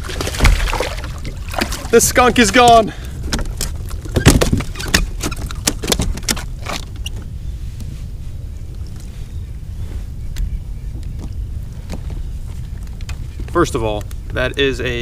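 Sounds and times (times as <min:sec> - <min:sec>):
clicks and knocks in plastic kayak: 0:00.0 - 0:07.9
low wind rumble on microphone: 0:00.0 - 0:15.0.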